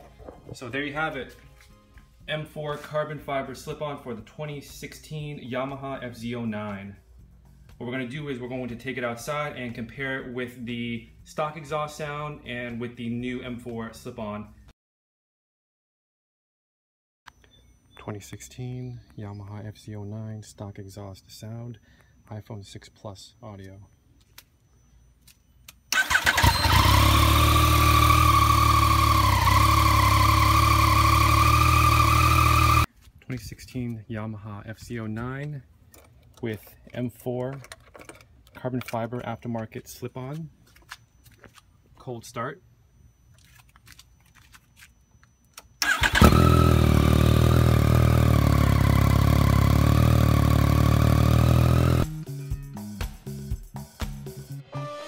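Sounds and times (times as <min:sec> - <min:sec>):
engine cranking: 0:25.9 - 0:32.9, 0:45.8 - 0:52.1
motorcycle engine idling: 0:26.0 - 0:32.8, 0:45.8 - 0:52.1.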